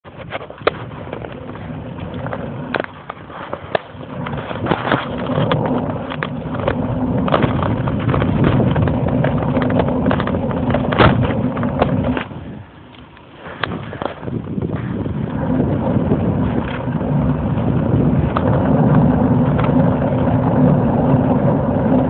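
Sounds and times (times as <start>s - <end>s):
bike road rumble: 0.0s - 22.0s
wind noise: 0.0s - 22.0s
sharp knocks and rattles: 0.1s - 12.4s.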